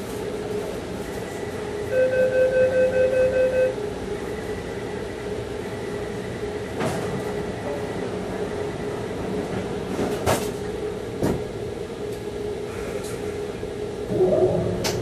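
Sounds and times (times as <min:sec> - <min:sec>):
train humming: 0:00.0 - 0:15.0
door warning beeps: 0:01.9 - 0:03.8.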